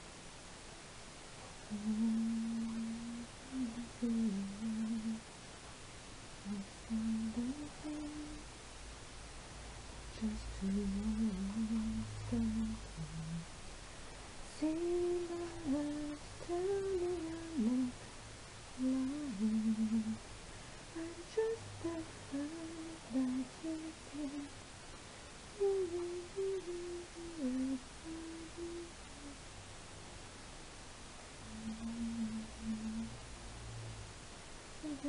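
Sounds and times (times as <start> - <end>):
woman humming a slow tune: 1.7 - 5.3, 6.4 - 8.5, 10.1 - 13.6, 14.5 - 18.0, 18.8 - 20.2, 20.9 - 24.6, 25.5 - 29.5, 31.4 - 33.2, 34.8 - 35.0.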